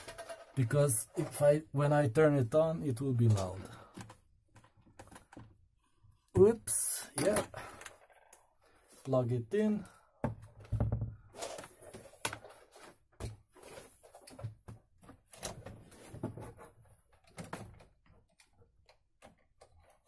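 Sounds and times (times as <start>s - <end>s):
handling knocks and clicks: 3.0s - 5.7s.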